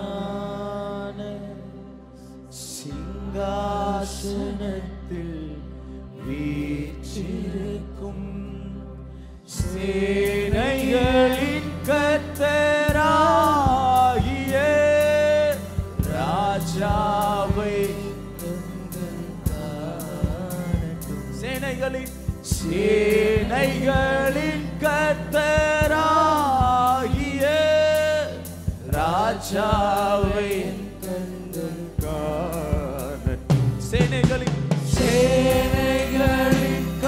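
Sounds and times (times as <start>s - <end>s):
man singing worship song: 0.0s - 37.0s
backing music with steady beat: 9.5s - 37.0s.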